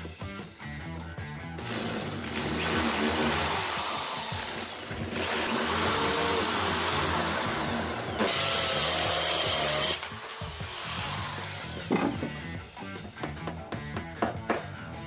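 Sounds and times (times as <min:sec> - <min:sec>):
power drill boring into concrete: 0:01.6 - 0:12.4.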